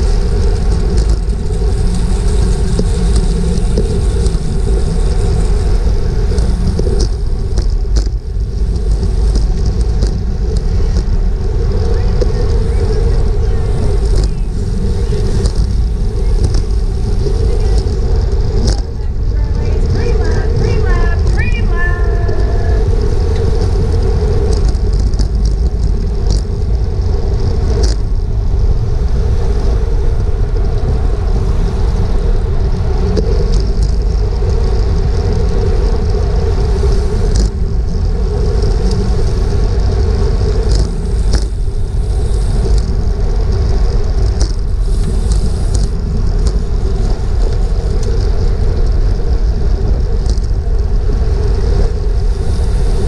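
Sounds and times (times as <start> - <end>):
tyre noise on pavement: 0.0 - 53.0
wind rushing over microphone: 0.0 - 53.0.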